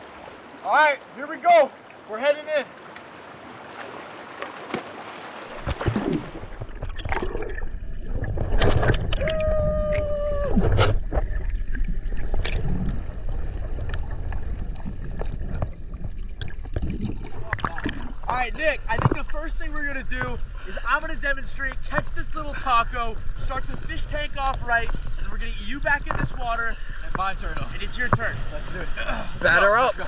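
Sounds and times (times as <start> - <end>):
bubbles: 5.6 - 18.3
muffled underwater rumble: 5.7 - 20.6.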